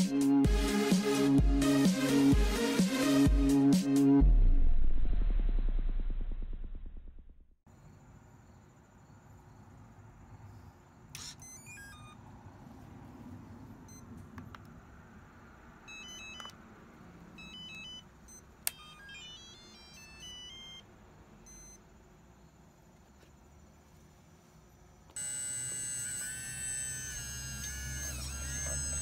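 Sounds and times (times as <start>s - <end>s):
electronic beeps: 11.2s - 12.2s, 17.4s - 20.8s, 25.2s - 29.0s.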